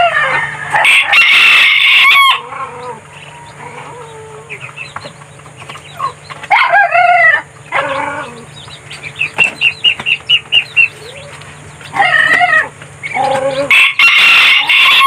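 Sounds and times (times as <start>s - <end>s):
rooster crowing: 0.0s - 4.6s, 6.0s - 8.5s, 11.9s - 15.0s.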